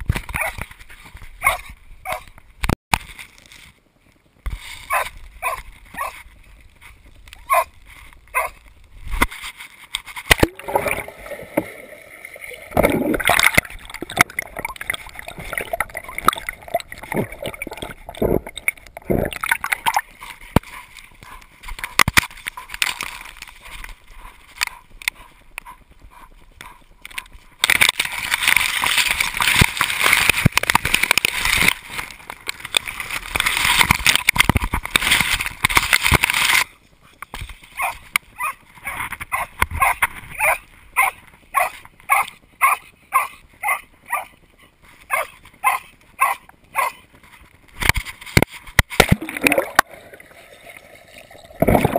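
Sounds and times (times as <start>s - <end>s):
rush of water: 9.0s - 21.0s, 48.5s - 51.9s.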